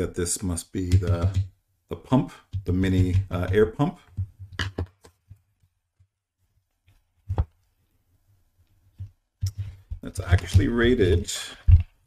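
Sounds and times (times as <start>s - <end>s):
plastic housing knocks and clicks: 4.2s - 5.2s.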